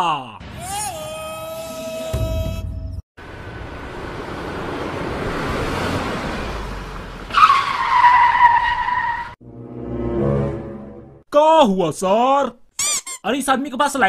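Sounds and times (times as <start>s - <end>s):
vehicle rushing past: 3.3s - 7.4s, 9.4s - 11.2s
tyres screeching: 12.8s - 13.3s.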